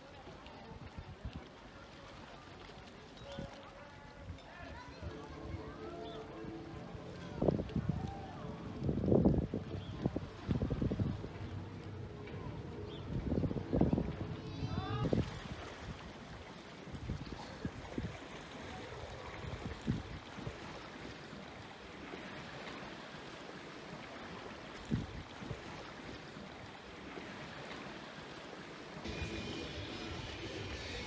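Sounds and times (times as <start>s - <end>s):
water lapping against boat hull: 0.0s - 29.1s
wind noise on microphone: 7.2s - 16.2s, 16.9s - 20.7s, 24.8s - 25.7s.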